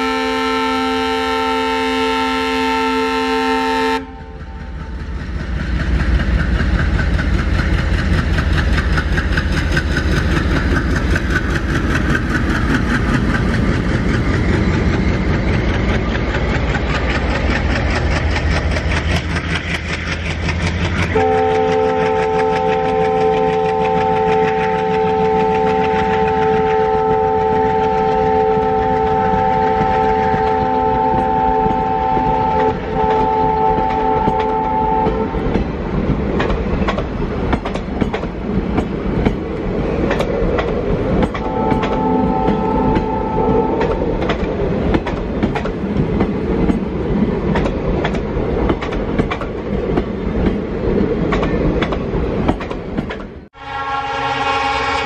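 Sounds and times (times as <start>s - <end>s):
multi-tone train horn: 0.0s - 5.0s, 21.1s - 35.6s, 41.3s - 44.1s, 53.5s - 55.0s
diesel locomotive rumble: 0.0s - 55.0s
train wheels clattering on rail joints: 4.1s - 53.5s.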